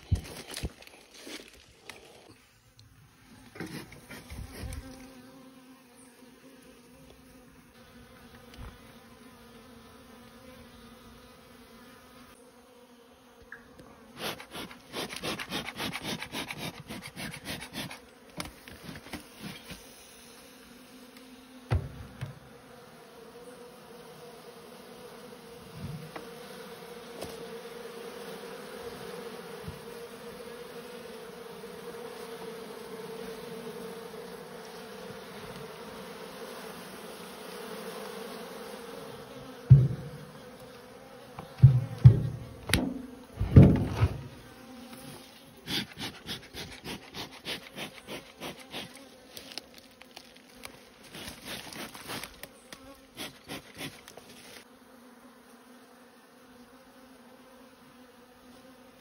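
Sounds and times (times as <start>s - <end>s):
honeybees buzzing: 0.0s - 59.0s
thump: 21.7s - 22.4s, 25.8s - 26.2s, 39.6s - 40.3s, 41.4s - 44.4s.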